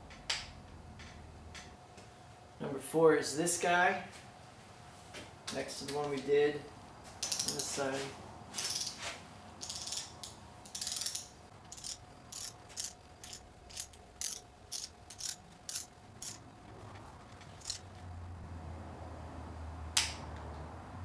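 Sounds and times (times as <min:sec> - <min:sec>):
torque wrench ratchet clicking: 0:07.2 - 0:07.7, 0:08.7 - 0:09.0, 0:09.6 - 0:16.4, 0:17.6 - 0:17.9.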